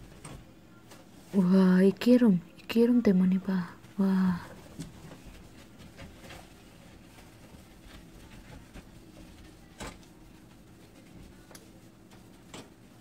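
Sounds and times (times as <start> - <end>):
cloth rubbing on steel stovetop: 3.8 - 13.0.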